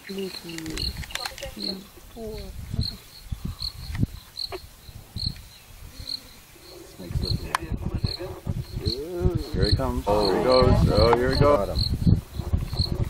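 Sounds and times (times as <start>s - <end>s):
high-pitched insect chirp: 0.0s - 13.0s
low thumps and rumbles: 6.6s - 13.0s.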